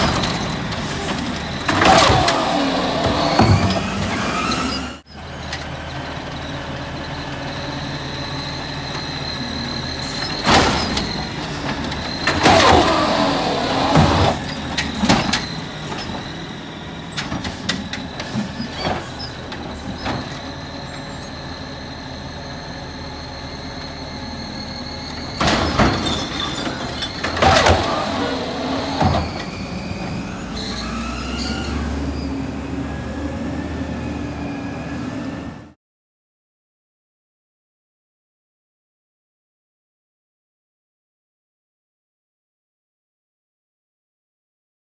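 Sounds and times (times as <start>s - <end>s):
clanks and bangs of carts: 0.0s - 5.8s, 10.0s - 21.2s, 25.0s - 32.0s
garbage truck high whine: 0.0s - 35.8s
truck engine rumble: 0.0s - 35.8s.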